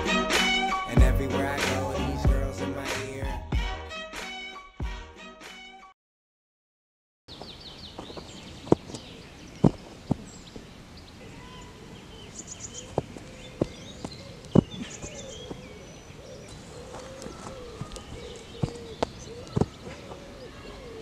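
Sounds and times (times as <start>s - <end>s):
small birds chirping: 7.3s - 21.0s.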